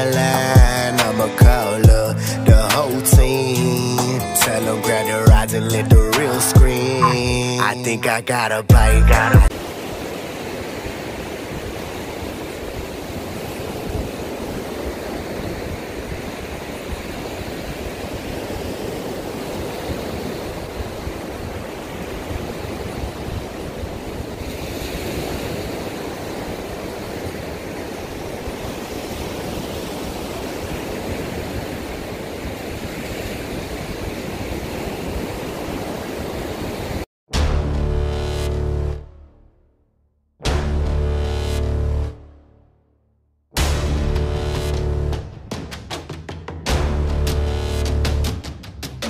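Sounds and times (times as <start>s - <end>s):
ocean surf breaking: 0.0s - 37.1s
wind on microphone: 8.7s - 37.0s.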